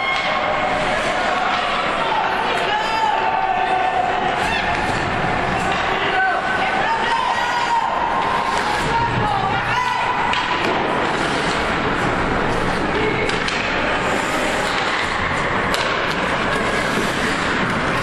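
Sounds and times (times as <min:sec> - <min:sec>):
skating and arena noise: 0:00.0 - 0:18.0
sticks clacking on puck: 0:00.1 - 0:03.2, 0:07.0 - 0:18.0.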